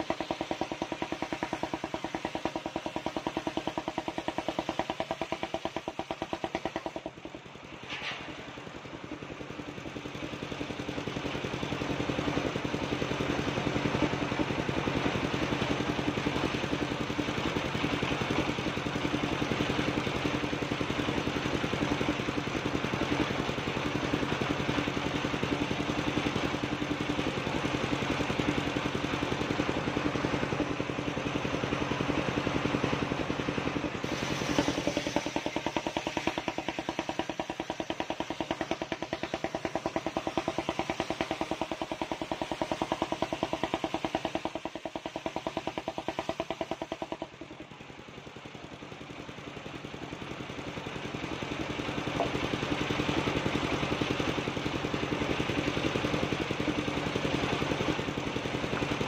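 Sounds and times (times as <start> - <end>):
circular blade cutting log: 0.0 - 8.6, 33.9 - 47.6, 52.0 - 53.3
sawmill engine pulsing: 0.0 - 59.0.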